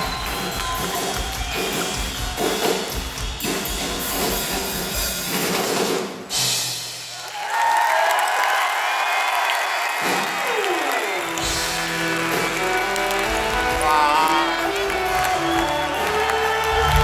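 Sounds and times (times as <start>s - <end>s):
rock band playing live: 0.0s - 7.1s, 11.2s - 17.0s.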